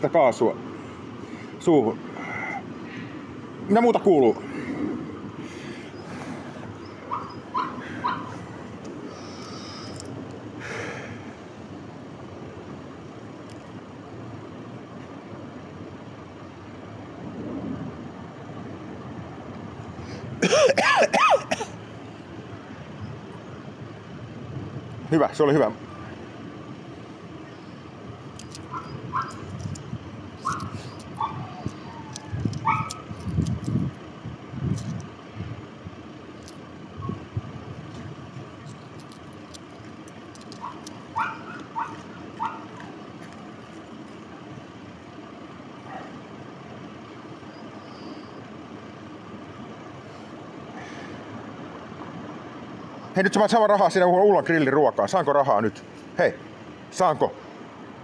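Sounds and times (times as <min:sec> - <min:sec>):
outdoor background noise: 0:00.0 - 0:58.0
steady background hum: 0:00.0 - 0:58.0
dog yapping: 0:07.1 - 0:08.4, 0:28.7 - 0:29.4, 0:30.4 - 0:33.1, 0:40.6 - 0:42.9
man coughing: 0:20.4 - 0:21.8.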